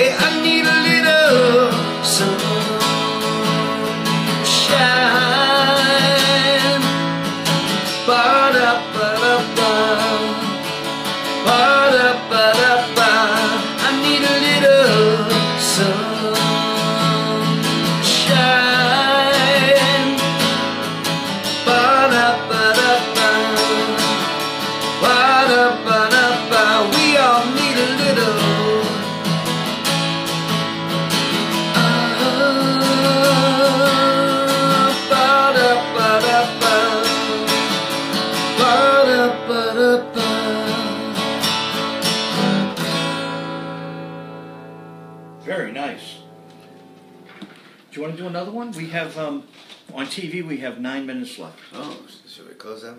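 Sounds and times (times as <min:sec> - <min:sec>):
man singing: 0:00.0 - 0:29.4, 0:31.5 - 0:41.6
acoustic guitar strumming: 0:00.0 - 0:49.7.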